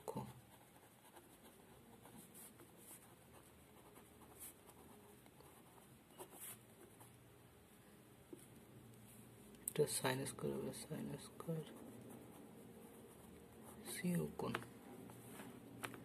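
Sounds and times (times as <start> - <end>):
pen scratching on paper: 0.1 - 7.1, 10.7 - 14.6.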